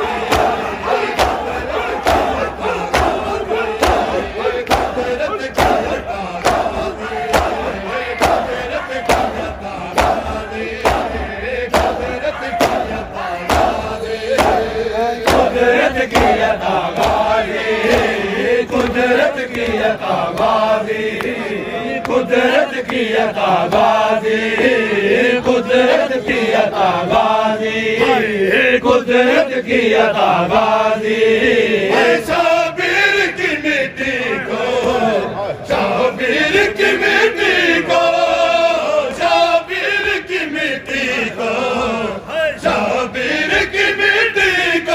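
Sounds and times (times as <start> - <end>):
crowd of men chanting: 0.0 - 44.9
hands slapping on chests: 0.3 - 15.5, 16.1 - 17.3.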